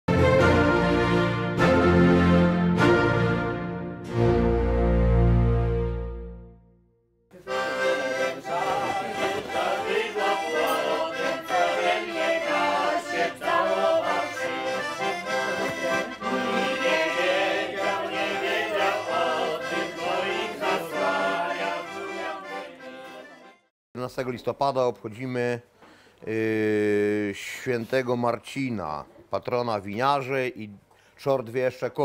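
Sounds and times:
accordion playing a tune: 0:00.1 - 0:06.7, 0:07.3 - 0:23.7.

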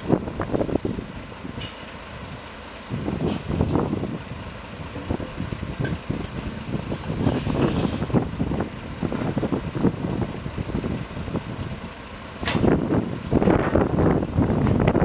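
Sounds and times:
wind buffeting microphone: 0:00.0 - 0:01.6, 0:02.9 - 0:15.0
diesel truck engine idling: 0:00.0 - 0:15.0.

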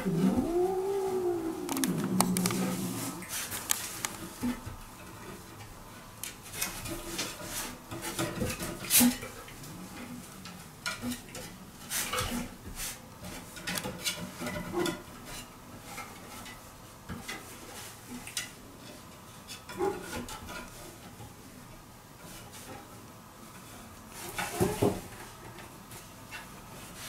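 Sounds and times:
claws scraping on wooden rungs: 0:00.0 - 0:04.4.

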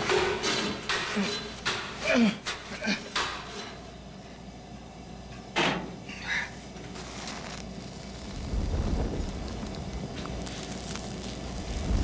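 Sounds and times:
rope scraping and rustling: 0:06.7 - 0:12.0
low rumble: 0:08.1 - 0:12.0.

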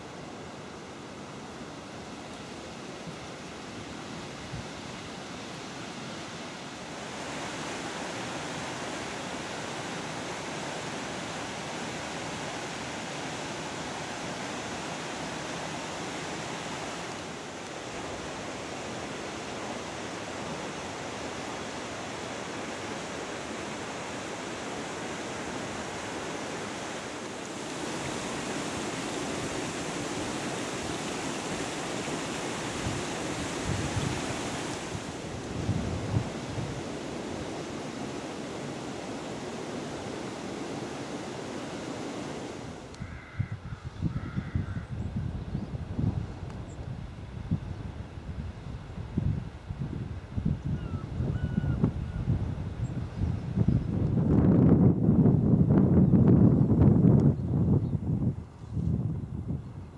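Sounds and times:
river rushing over rapids: 0:00.0 - 0:43.0.

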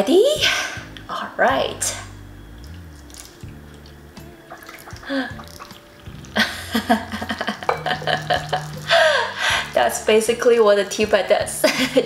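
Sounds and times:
tea pouring and splashing: 0:02.5 - 0:10.0
woman laughing: 0:06.4 - 0:09.6, 0:11.6 - 0:12.0.

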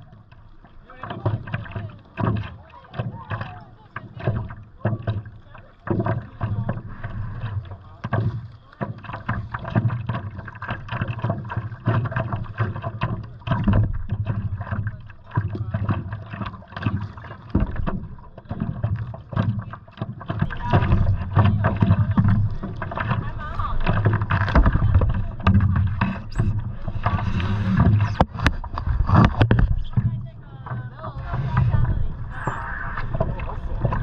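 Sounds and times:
water splashing against paddleboard: 0:00.0 - 0:34.0
wind buffeting microphone: 0:20.4 - 0:34.0.

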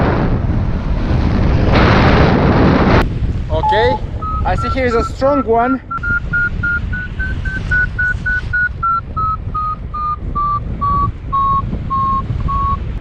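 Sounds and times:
wind rushing over microphone: 0:00.0 - 0:13.0
variometer short beeps: 0:03.6 - 0:12.9.

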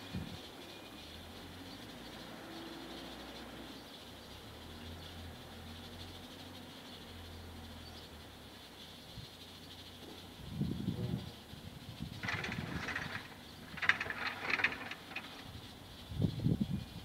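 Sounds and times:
insects chorus: 0:00.0 - 0:17.0.

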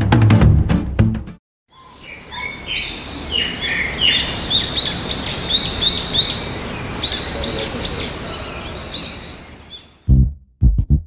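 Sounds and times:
songbirds chirping and singing: 0:01.7 - 0:10.1
background hiss: 0:02.0 - 0:10.1.

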